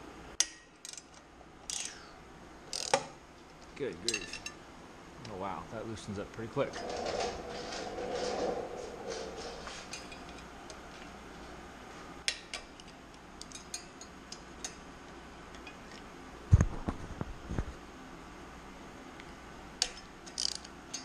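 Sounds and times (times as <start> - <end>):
ratchet wrench clicking: 20.3 - 21.0.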